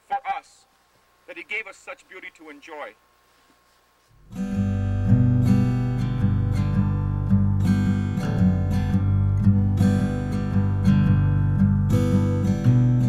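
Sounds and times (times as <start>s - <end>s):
acoustic guitar strumming chords: 4.2s - 13.0s.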